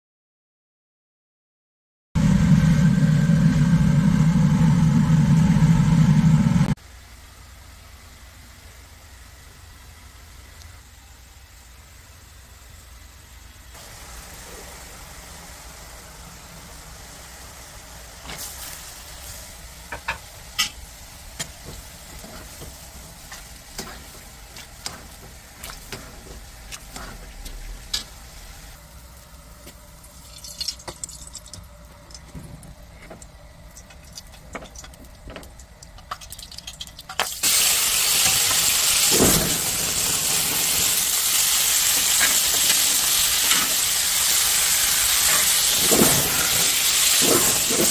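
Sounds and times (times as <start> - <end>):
food sizzling in frying pan: 13.8 - 31.4, 36.1 - 47.9
water simmering in a pan: 13.8 - 32.4, 33.2 - 47.9.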